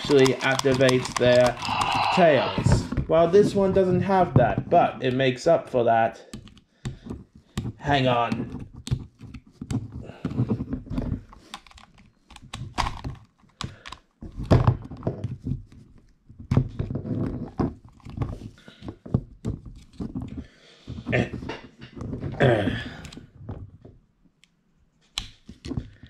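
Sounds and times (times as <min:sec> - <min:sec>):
plastic toy clicking and knocking: 0:00.0 - 0:02.6, 0:06.3 - 0:15.4.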